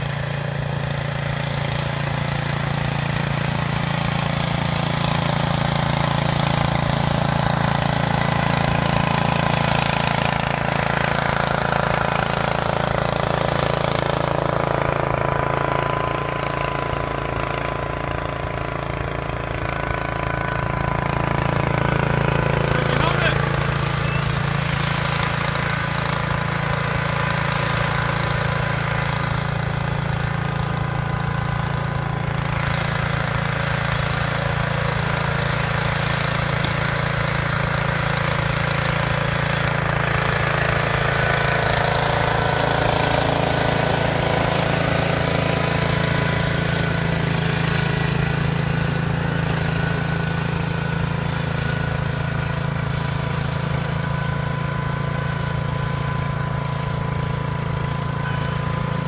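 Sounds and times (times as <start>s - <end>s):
garden tractor engine running: 0.0s - 59.0s.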